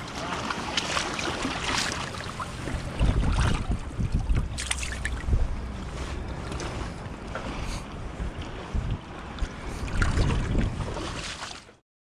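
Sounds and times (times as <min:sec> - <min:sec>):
fish splashing in water: 0:00.0 - 0:05.4
lapping river water: 0:00.0 - 0:11.8
wind rumbling on microphone: 0:01.2 - 0:11.7.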